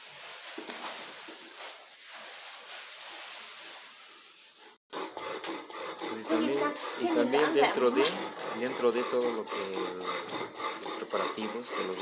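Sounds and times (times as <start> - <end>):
sawdust sifting through strainer: 5.4 - 12.0.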